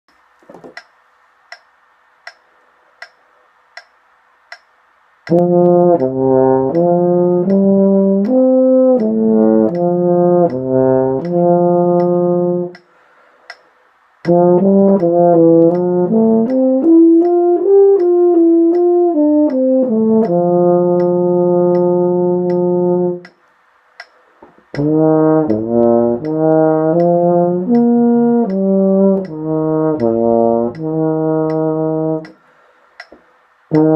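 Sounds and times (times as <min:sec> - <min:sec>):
steady ticks: 0:00.1 - 0:32.4, 0:33.0 - 0:33.9
solo euphonium playing: 0:05.3 - 0:12.8, 0:14.3 - 0:23.3, 0:24.8 - 0:32.4.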